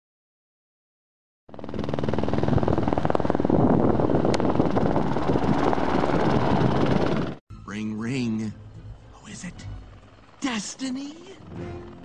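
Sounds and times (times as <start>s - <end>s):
helicopter rotor beating: 1.5s - 12.0s.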